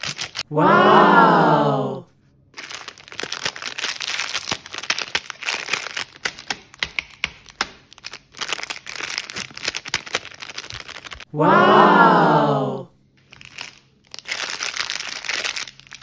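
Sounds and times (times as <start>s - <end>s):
plastic wrapper crinkling: 0.0s - 0.4s, 2.5s - 11.3s, 13.2s - 16.0s.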